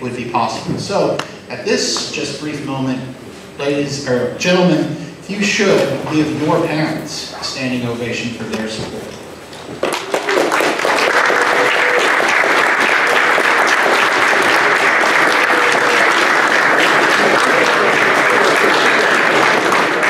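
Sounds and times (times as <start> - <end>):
crowd clapping: 9.8 - 20.0.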